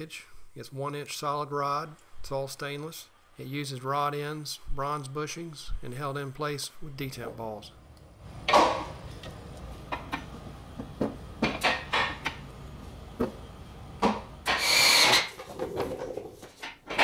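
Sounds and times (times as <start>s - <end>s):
metal scraping rub: 14.4s - 16.7s.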